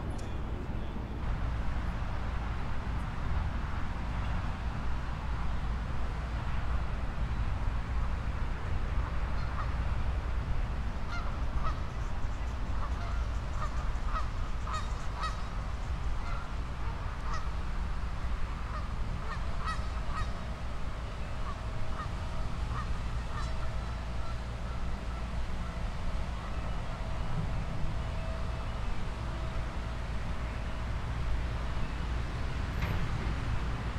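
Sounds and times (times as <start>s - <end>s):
geese honking: 12.8s - 15.5s, 16.2s - 17.5s, 18.7s - 20.4s, 21.4s - 27.0s.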